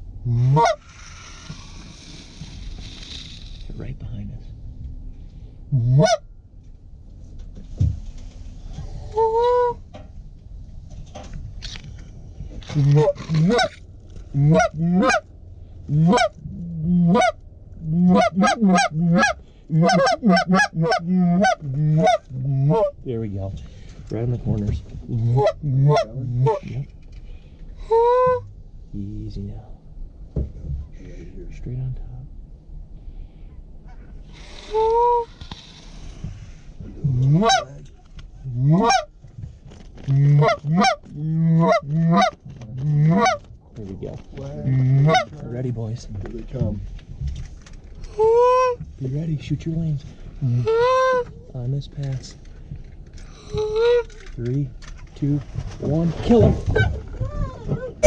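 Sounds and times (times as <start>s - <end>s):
goose call honking: 0.3s - 1.6s, 5.8s - 6.2s, 12.7s - 13.8s, 14.4s - 15.2s, 15.9s - 23.0s, 25.2s - 26.8s, 27.8s - 28.5s, 33.9s - 35.7s, 37.1s - 37.8s, 38.5s - 39.1s, 40.1s - 43.5s, 44.7s - 45.4s, 48.2s - 48.8s, 50.4s - 51.4s.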